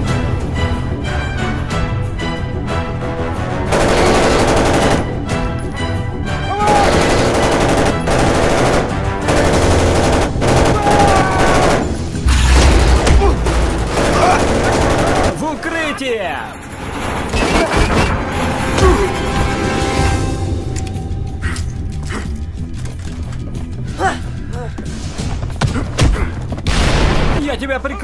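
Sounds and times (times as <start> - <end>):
action film music: 0.0 - 28.0
gunfire in rapid bursts: 3.7 - 5.3, 6.6 - 15.6.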